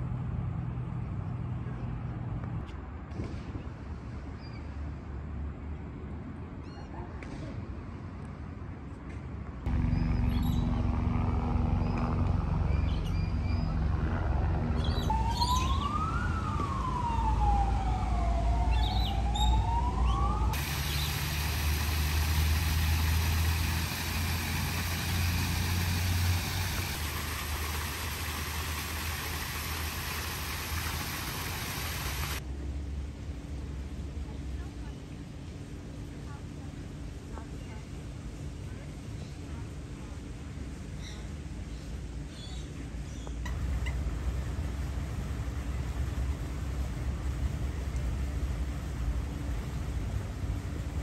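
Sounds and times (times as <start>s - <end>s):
low traffic rumble: 0.0s - 51.0s
emergency siren wailing: 15.0s - 20.7s
water pouring over rock wall: 20.6s - 32.4s.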